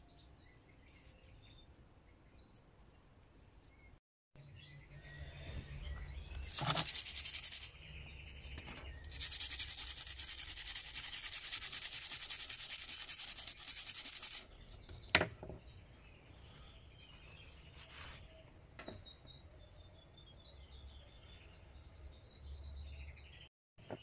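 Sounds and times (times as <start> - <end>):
brush scrubbing metal blade: 6.4 - 7.8, 9.1 - 14.4.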